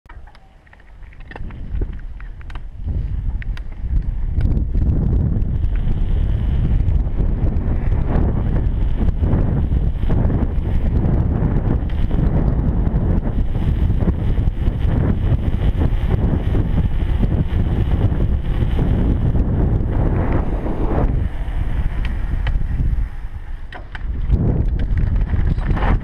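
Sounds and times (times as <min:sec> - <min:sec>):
bike clicks: 0:00.1 - 0:26.0
wind buffeting microphone: 0:00.9 - 0:26.0.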